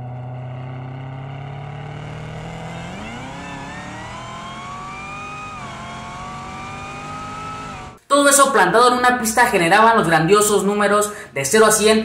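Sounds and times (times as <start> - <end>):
car engine revving: 0.0 - 8.0.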